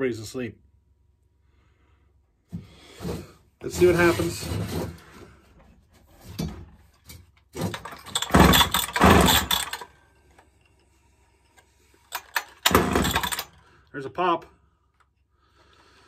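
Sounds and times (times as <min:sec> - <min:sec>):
starter cord yanks: 0:07.6 - 0:09.9, 0:12.1 - 0:13.6.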